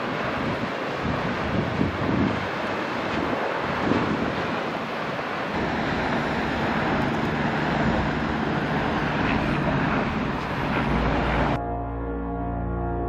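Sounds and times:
lava fountain rushing: 0:00.0 - 0:11.6
wind on microphone: 0:00.0 - 0:11.6
low rumble: 0:05.6 - 0:13.0.

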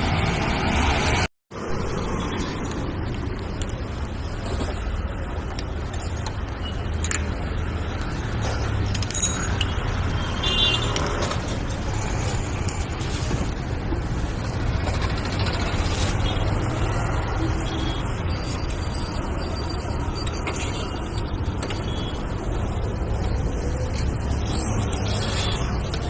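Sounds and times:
street traffic rumble: 0:00.0 - 0:26.0
metal clinks and knocks: 0:08.6 - 0:10.0.

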